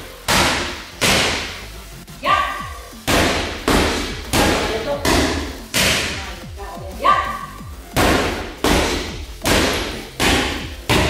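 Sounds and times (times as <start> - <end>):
boxing gloves striking focus mitts: 0.3 - 1.6, 3.0 - 6.2, 7.9 - 11.0.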